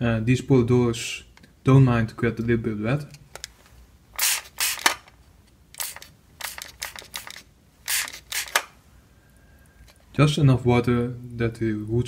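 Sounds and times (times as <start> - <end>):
spray bottle spritzing: 4.2 - 4.9, 5.8 - 8.7.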